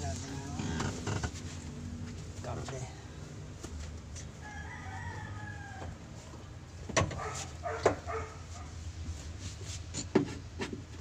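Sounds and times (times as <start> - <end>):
rooster crowing: 4.4 - 6.2.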